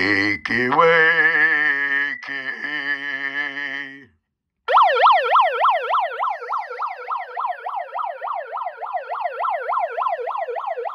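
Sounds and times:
megaphone siren yelping: 4.7 - 10.9.

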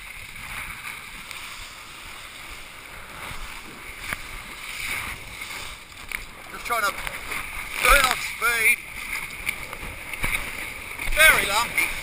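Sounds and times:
water rushing: 0.0 - 12.0
wind: 0.0 - 12.0.

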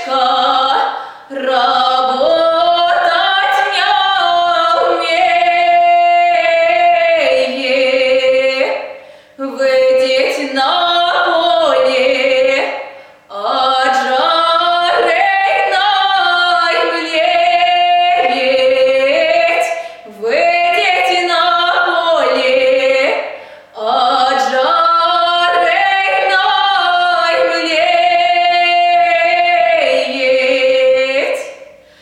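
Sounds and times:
woman singing unaccompanied: 0.0 - 31.8.

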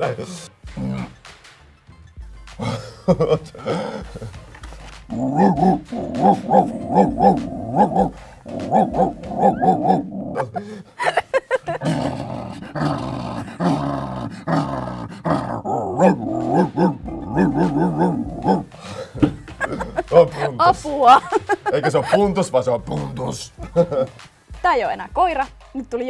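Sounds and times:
man imitating dog barking: 5.1 - 10.8, 11.6 - 22.2, 23.4 - 24.1
man growling into bucket: 5.1 - 10.9, 11.7 - 20.1.

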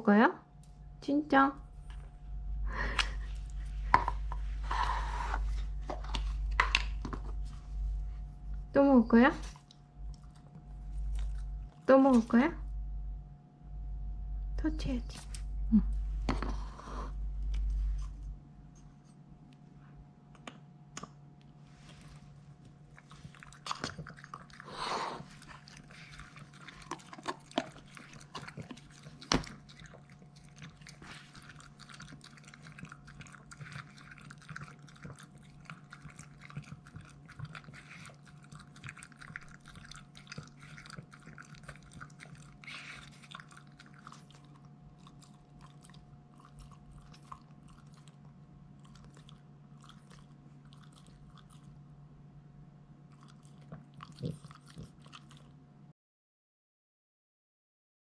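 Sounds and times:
dog lapping water: 23.1 - 48.2.

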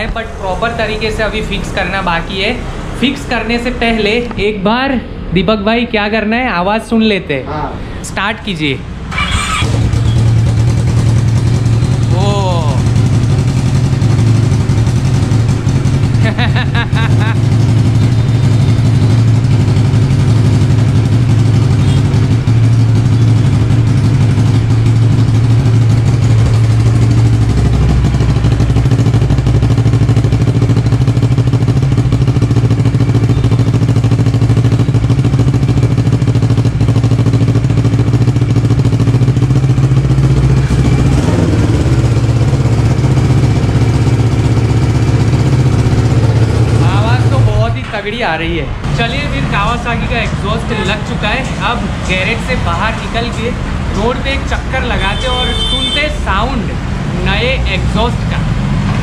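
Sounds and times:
motorcycle engine idling: 9.1 - 47.7, 55.0 - 56.0.

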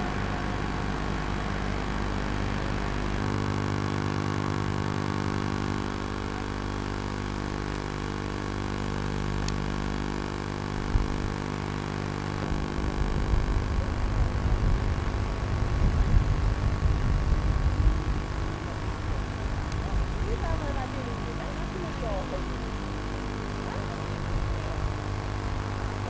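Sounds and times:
excavator diesel engine running: 0.0 - 6.4, 12.2 - 26.0.

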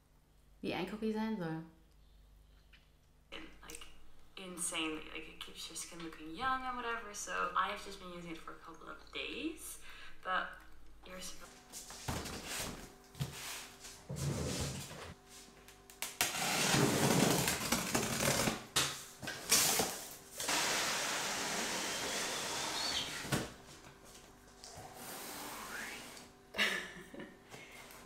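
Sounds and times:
cardboard rustling and scraping: 11.8 - 15.2.

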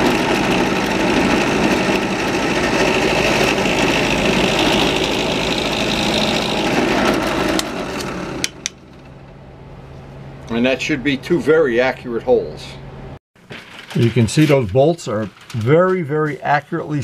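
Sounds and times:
drill cutting noise: 0.0 - 8.6
drill press motor hum: 0.0 - 9.3.

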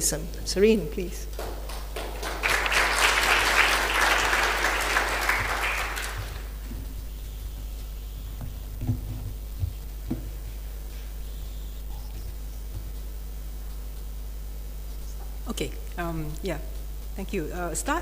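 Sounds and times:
steady low hum: 0.0 - 18.0
audience applauding: 1.4 - 6.6
low thumps: 8.3 - 10.9.

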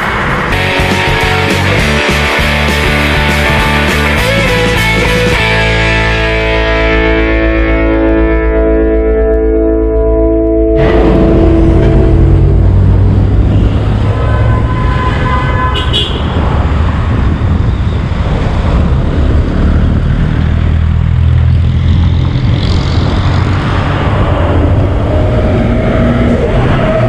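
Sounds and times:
traffic rumble: 0.0 - 8.9, 10.7 - 27.0
car horn: 13.3 - 16.5.

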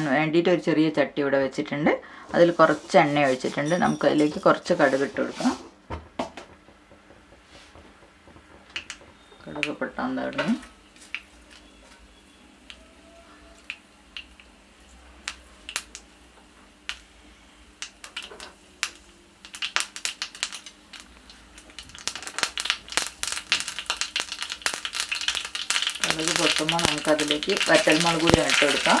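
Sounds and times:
seeds popping in hot oil: 6.2 - 29.0.

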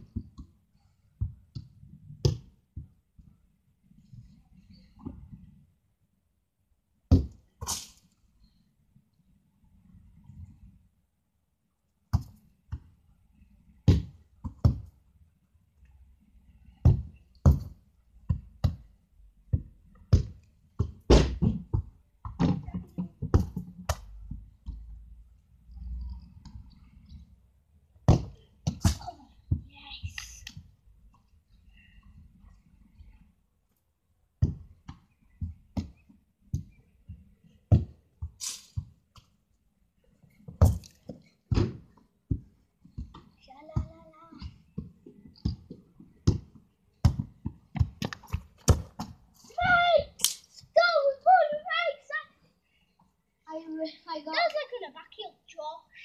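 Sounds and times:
football kicks and thumps: 1.2 - 3.0, 7.1 - 7.4, 13.8 - 14.9, 16.8 - 18.8, 19.5 - 24.8, 28.0 - 29.7, 34.4 - 36.8, 37.7 - 39.0, 41.5 - 49.2.

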